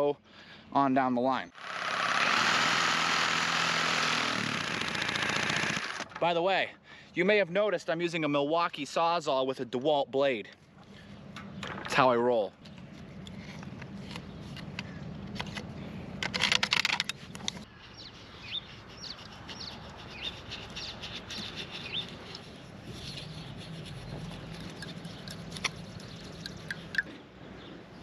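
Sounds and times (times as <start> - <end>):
reciprocating saw cutting pipe: 1.5 - 6.1
birds chirping: 10.6 - 16.3, 17.1 - 28.0.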